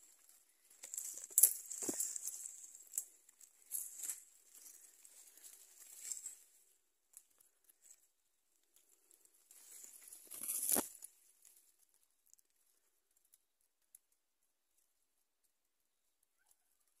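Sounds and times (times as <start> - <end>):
leaves and brush rustling: 0.0 - 8.1, 8.7 - 11.9.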